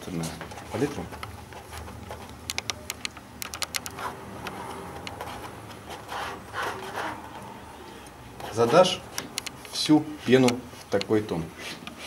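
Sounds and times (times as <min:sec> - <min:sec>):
palette knife scraping paint: 0:03.9 - 0:07.4, 0:08.4 - 0:09.0.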